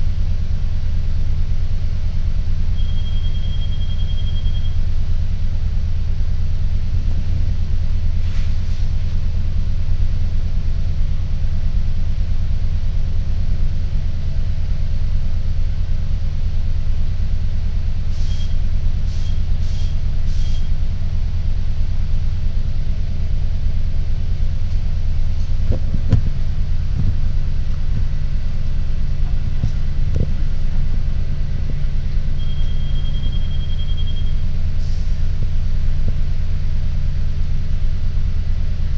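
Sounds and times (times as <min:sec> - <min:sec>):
bus engine idling: 0:00.0 - 0:38.9
short high beeps: 0:02.8 - 0:04.8, 0:32.4 - 0:34.4.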